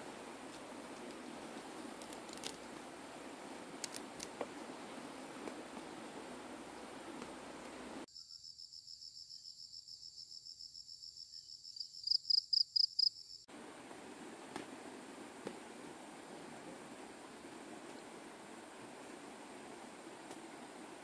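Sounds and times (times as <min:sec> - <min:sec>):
faint background hiss: 0:00.0 - 0:08.1, 0:13.5 - 0:21.0
insect chirping trill: 0:07.8 - 0:13.5.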